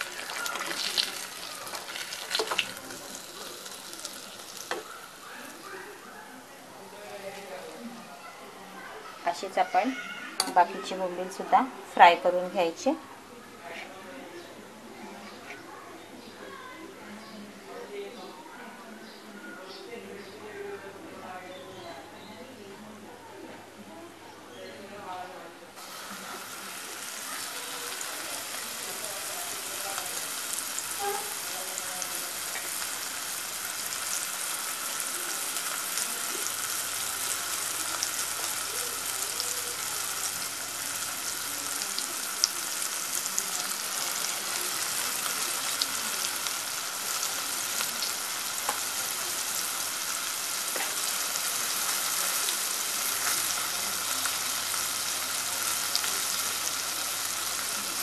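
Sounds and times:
oil crackles and pops: 0:00.0 - 0:05.6, 0:25.8 - 0:57.6
fish sizzling in hot oil: 0:00.0 - 0:05.8, 0:25.8 - 0:58.0.

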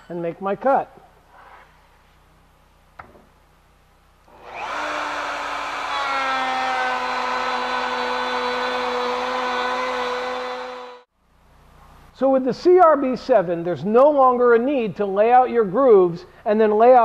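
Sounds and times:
electric router motor whining: 0:04.3 - 0:11.1.

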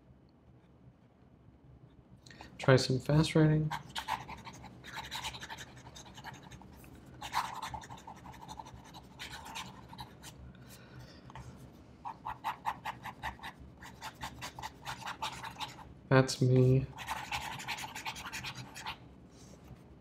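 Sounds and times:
fountain pen scratching on paper: 0:03.7 - 0:10.4, 0:12.0 - 0:15.9, 0:16.9 - 0:19.0.

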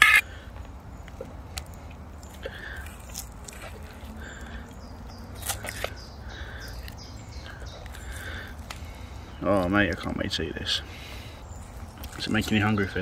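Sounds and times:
animal calling: 0:00.0 - 0:00.3.

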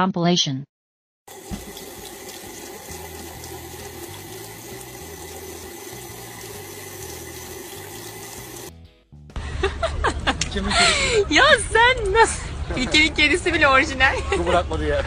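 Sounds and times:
tap water running into sink: 0:01.3 - 0:08.7.

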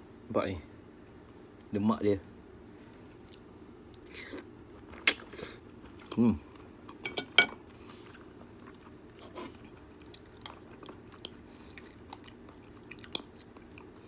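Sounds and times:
quiet chewing with mouth clicks: 0:02.9 - 0:07.0, 0:07.6 - 0:14.0
cutlery clinking on a plate: 0:07.0 - 0:07.6.

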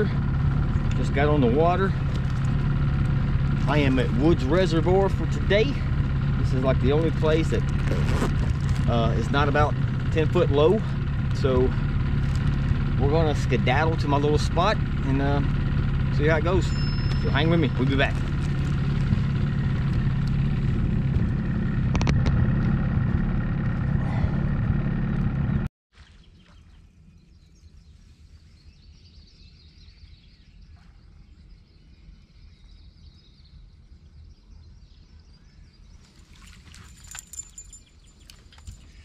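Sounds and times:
outboard motor running: 0:00.0 - 0:25.7, 0:36.0 - 0:39.0.

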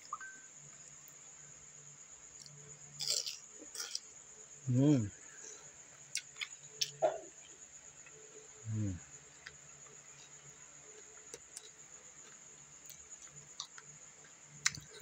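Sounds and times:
cricket trilling: 0:00.0 - 0:15.0
person humming mm: 0:08.7 - 0:09.0
soft eating clicks: 0:09.4 - 0:15.0.

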